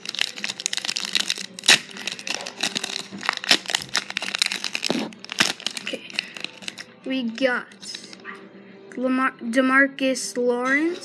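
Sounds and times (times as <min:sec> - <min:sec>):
wrapper tearing and crinkling: 0:00.0 - 0:06.9.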